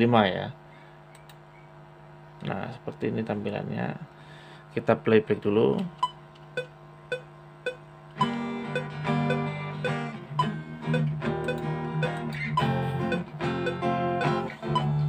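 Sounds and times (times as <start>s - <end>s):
metronome clicking: 6.6s - 14.9s
acoustic guitar strummed chords: 8.2s - 15.0s.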